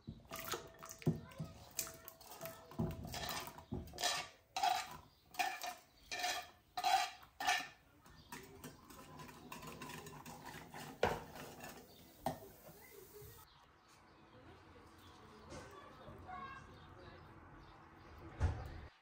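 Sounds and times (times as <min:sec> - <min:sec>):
whisk stirring liquid: 0:00.1 - 0:12.8
whisk scraping wooden cutting board: 0:02.2 - 0:07.8, 0:08.4 - 0:12.3.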